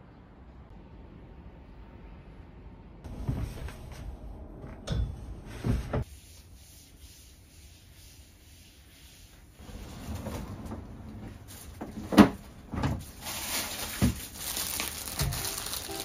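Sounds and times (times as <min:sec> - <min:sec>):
plastic bag rustling: 0:13.0 - 0:16.0.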